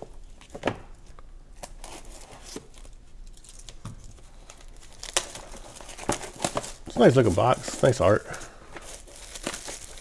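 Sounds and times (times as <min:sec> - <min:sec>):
shrink wrap crinkling and tearing: 0:01.6 - 0:10.0.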